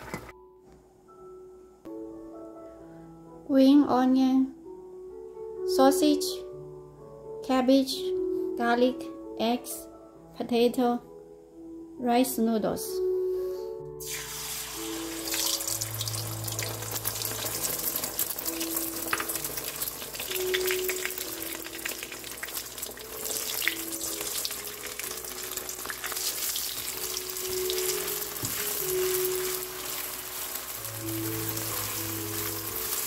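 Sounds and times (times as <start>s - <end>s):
soft background music: 0.0s - 33.0s
eggs sizzling in hot oil: 14.0s - 33.0s.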